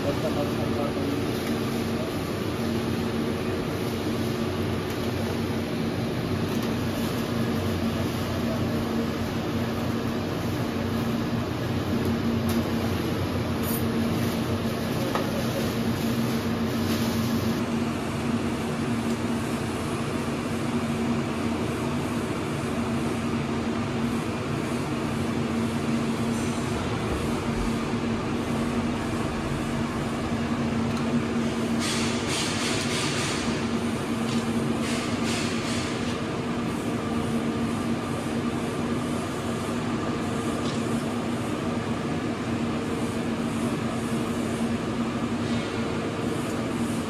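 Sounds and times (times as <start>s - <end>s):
cooling fan machine hum: 0.0s - 47.0s.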